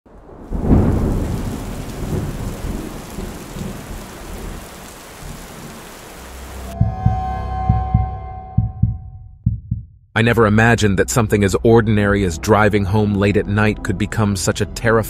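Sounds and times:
rain hissing: 0.1 - 6.8
thunder rumbling: 0.1 - 9.0.

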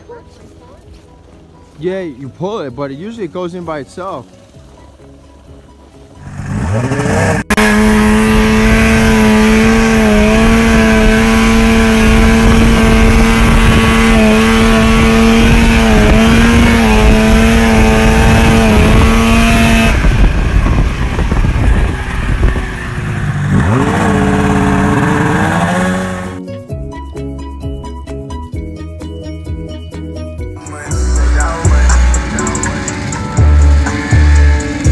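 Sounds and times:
snowmobile engine running: 6.2 - 26.4, 31.1 - 34.9
rushing of wind and track: 6.3 - 26.4.

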